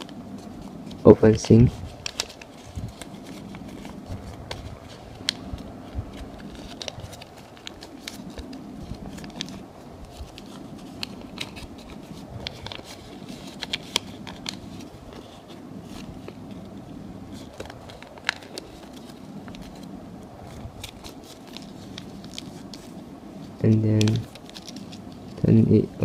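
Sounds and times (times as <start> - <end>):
paper crackling and crinkling: 0.0 - 26.0
steady low hum: 0.0 - 26.0.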